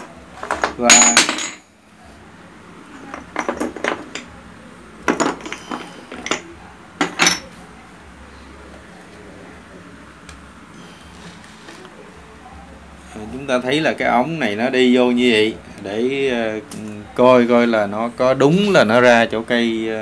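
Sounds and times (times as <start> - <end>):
metal parts clinking: 0.0 - 1.7, 3.0 - 4.3, 5.1 - 7.6.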